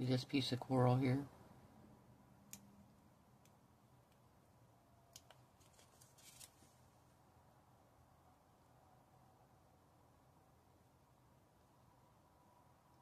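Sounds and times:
plastic sticker sheet rustle: 5.3s - 6.8s.

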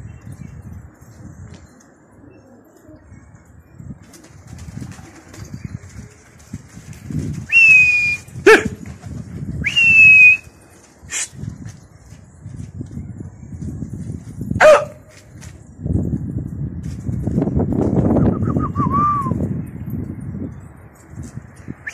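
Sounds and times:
long whistled notes: 7.5s - 8.3s, 9.6s - 10.5s.

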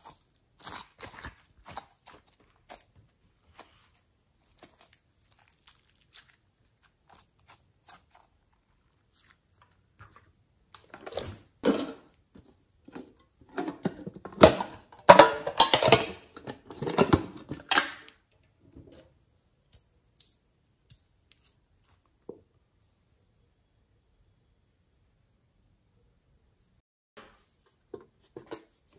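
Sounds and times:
tin container clattering: 13.0s - 18.0s.

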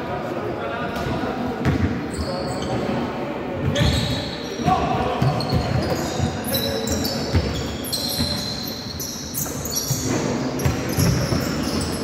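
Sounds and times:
shoes squeaking on floor: 2.0s - 3.1s, 3.7s - 12.0s
basketball bouncing on court: 5.2s - 6.4s, 7.2s - 8.6s, 9.4s - 12.0s.

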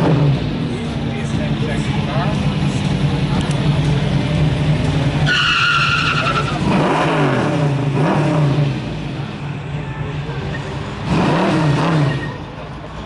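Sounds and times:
car engines revving: 0.0s - 13.0s
tyre squeal: 5.2s - 6.7s, 12.0s - 12.5s.

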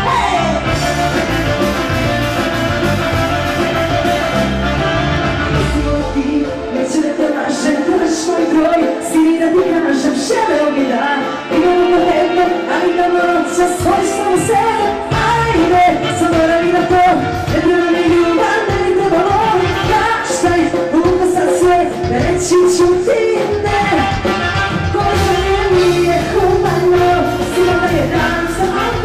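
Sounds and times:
live folk-pop band: 0.0s - 29.0s.

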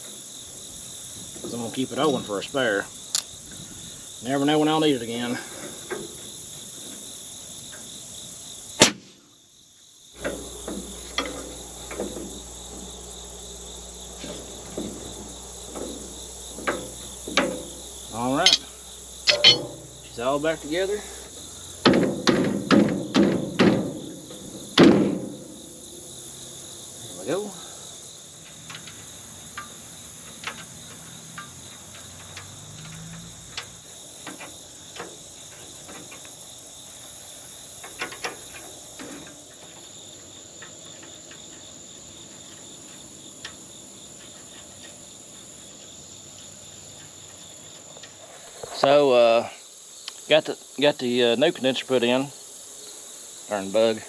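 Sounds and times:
crickets chirring: 0.0s - 54.0s
wrench clinking on metal fittings: 18.2s - 18.7s, 19.3s - 19.9s
sharp metal clicks: 18.4s - 19.9s.

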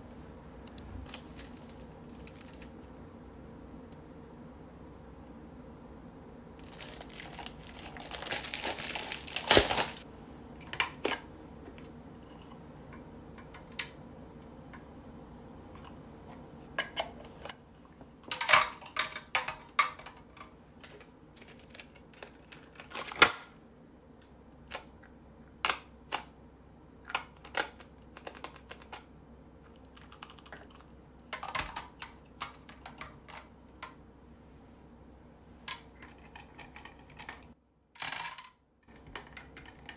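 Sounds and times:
plastic packaging crinkling: 1.1s - 2.7s, 6.6s - 10.0s, 21.4s - 23.3s.

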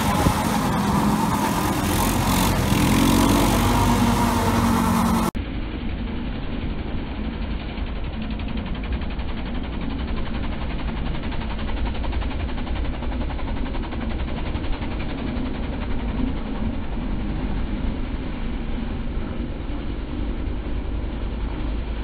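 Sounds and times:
quad engine running: 0.0s - 5.4s.

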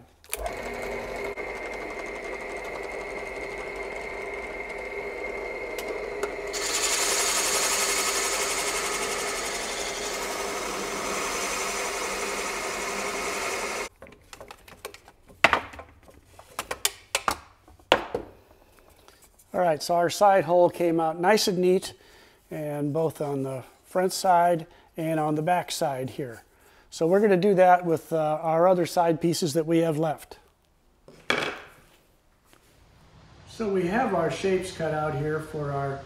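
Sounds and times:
drill bit cutting wood: 0.3s - 13.9s
drill press running: 0.3s - 13.9s.

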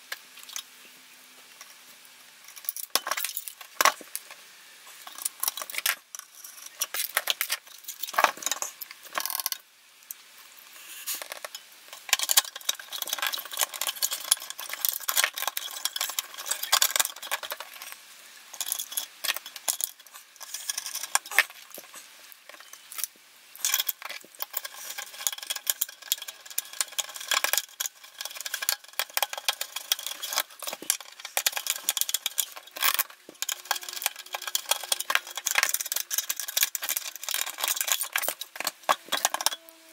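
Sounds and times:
screwdriver clicking on metal: 22.5s - 39.7s.

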